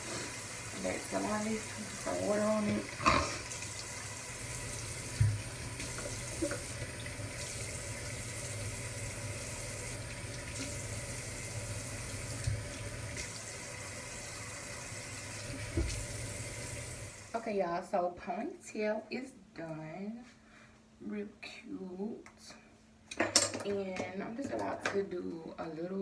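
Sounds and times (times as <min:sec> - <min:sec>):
tap water running into sink: 0:00.0 - 0:17.3.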